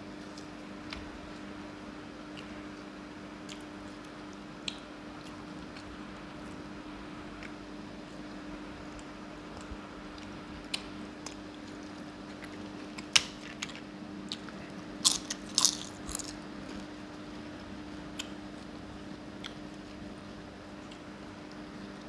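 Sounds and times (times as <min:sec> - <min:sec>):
crunching crisp papad: 0:10.1 - 0:16.9.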